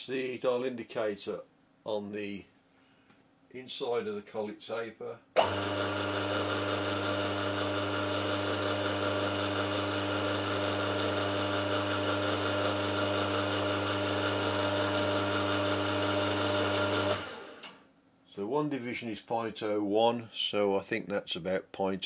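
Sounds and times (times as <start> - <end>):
milling machine motor hum: 5.4 - 17.8.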